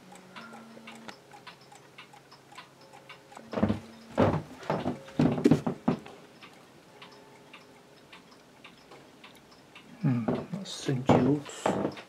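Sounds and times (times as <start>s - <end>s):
mechanical clock ticking: 0.0s - 12.0s
loud thumps and bumps: 3.5s - 6.0s.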